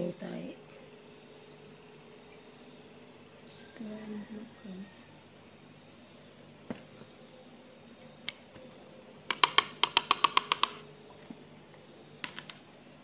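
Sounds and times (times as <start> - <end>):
plastic items clicking and tapping: 9.3 - 10.8, 12.2 - 12.6.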